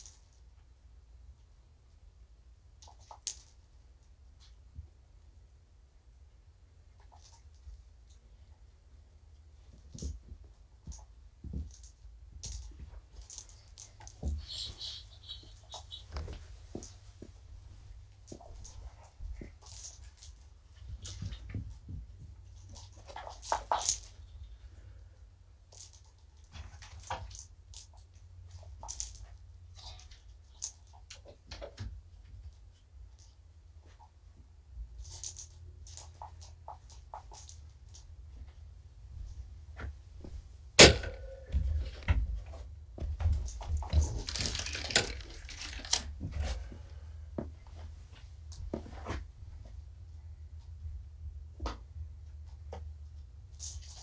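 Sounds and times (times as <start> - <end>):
toys clicking and rattling: 9.8 - 17.0, 18.2 - 24.7, 25.7 - 33.4, 35.0 - 38.1, 43.4 - 46.5, 53.5 - 54.0
steady low hum: 32.0 - 44.2.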